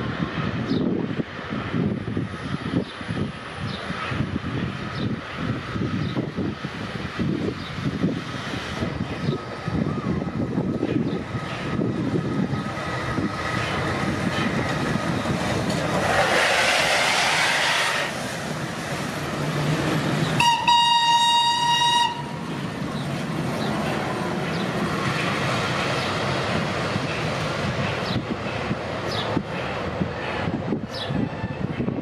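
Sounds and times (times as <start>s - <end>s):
steam train rumbling and clattering: 0.0s - 32.0s
steam hiss: 15.8s - 20.7s
train whistle: 20.4s - 22.4s.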